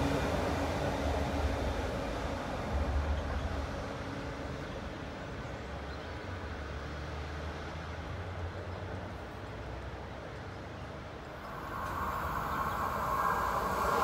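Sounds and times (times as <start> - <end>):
electric train humming and rumbling: 0.0 - 6.5, 11.2 - 14.0.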